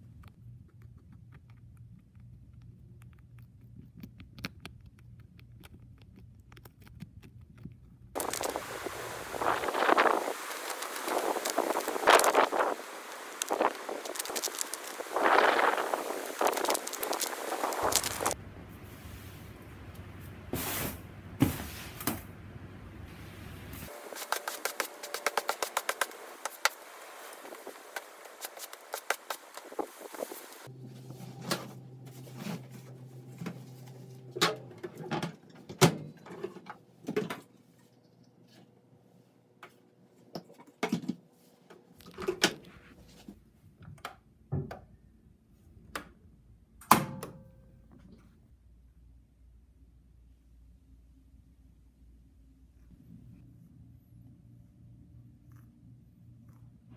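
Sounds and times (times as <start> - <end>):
push broom scrubbing: 8.2 - 18.4, 23.8 - 32.9.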